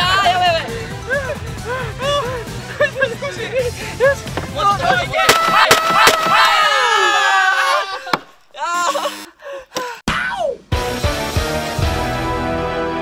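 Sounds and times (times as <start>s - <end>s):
excited voices shouting: 0.0s - 2.4s, 3.0s - 9.2s
background music: 0.0s - 6.9s, 10.1s - 13.0s
sharp cracks: 5.2s - 6.7s.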